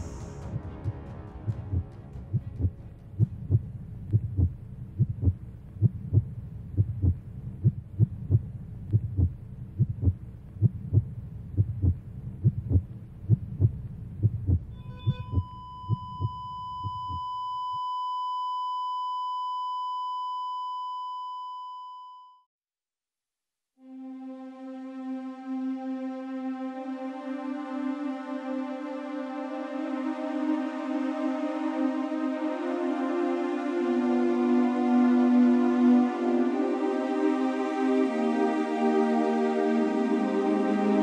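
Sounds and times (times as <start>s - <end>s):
heartbeat thumps: 0.4s - 17.4s
long steady electronic beep: 14.7s - 22.5s.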